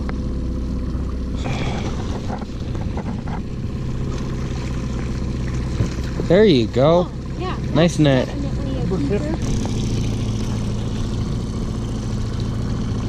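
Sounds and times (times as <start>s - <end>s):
outboard motor running: 0.0s - 13.0s
water splashing: 0.8s - 13.0s.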